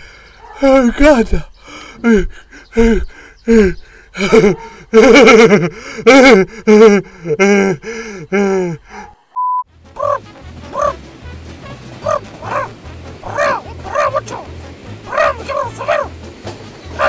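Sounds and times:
man moaning and groaning: 1.7 - 9.2
short single-tone beep: 9.4 - 9.7.

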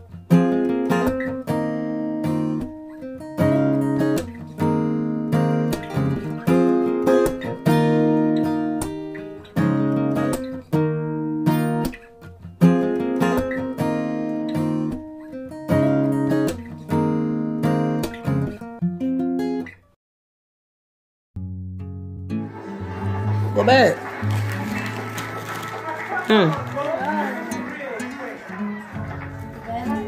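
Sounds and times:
acoustic guitar chords: 0.0 - 19.8, 21.4 - 30.0.

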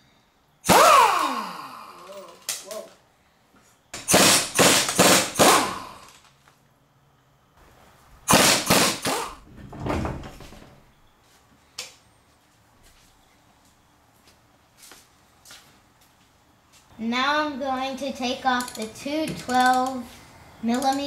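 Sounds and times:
pneumatic impact wrench bursts: 0.6 - 2.5, 4.0 - 6.3, 8.3 - 9.4.

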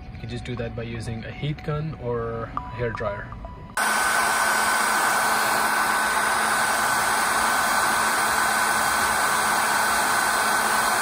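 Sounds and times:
hair dryer blowing: 3.8 - 11.0.

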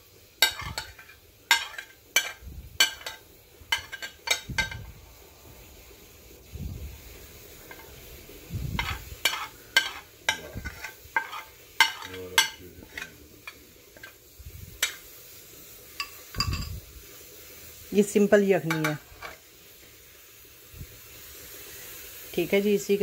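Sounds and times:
spoon scraping ceramic plate: 0.4 - 4.8, 8.8 - 14.2
stirring in a bowl: 0.4 - 4.8, 8.8 - 14.2.

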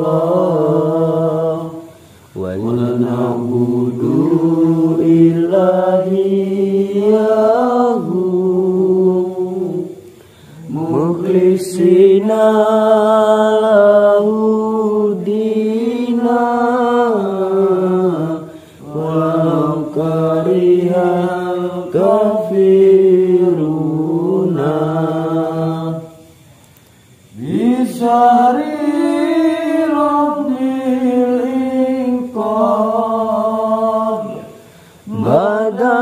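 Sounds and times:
man chanting a prayer: 0.0 - 9.8.

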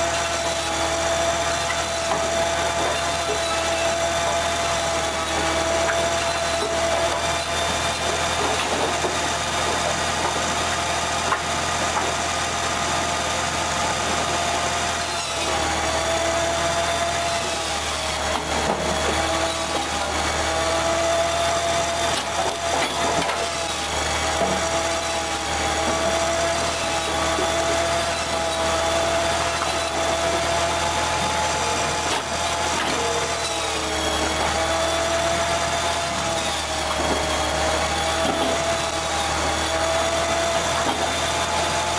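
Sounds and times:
band saw humming: 0.0 - 41.9
rasp of sawing wood: 0.0 - 41.9.

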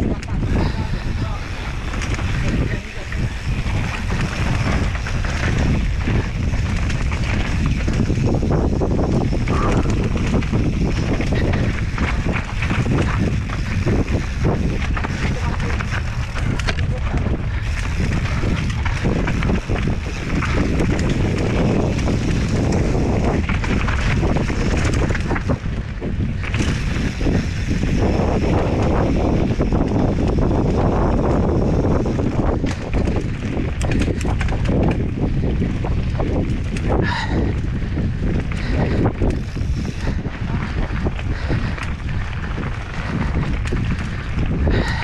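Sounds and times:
mountain bike knocking and rattling: 0.0 - 45.0
wind rushing over microphone: 0.0 - 45.0.

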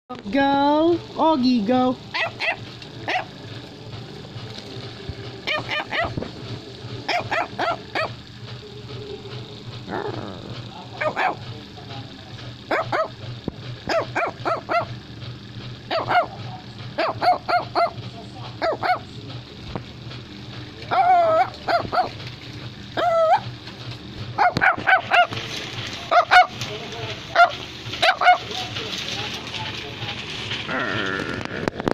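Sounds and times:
dog yipping barks: 2.1 - 3.3, 5.4 - 6.2, 7.1 - 8.2, 11.0 - 11.4, 12.7 - 13.2, 13.9 - 14.9, 15.9 - 16.4, 17.0 - 18.0, 18.6 - 19.1, 20.9 - 22.1, 23.0 - 23.4, 24.4 - 25.3, 26.1 - 26.6, 27.3 - 28.4.

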